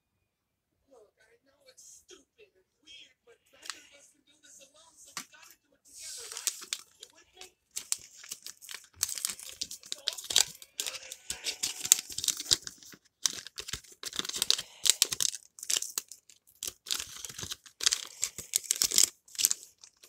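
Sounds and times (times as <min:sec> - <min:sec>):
rustling and crinkling: 0:05.1 - 0:20.0.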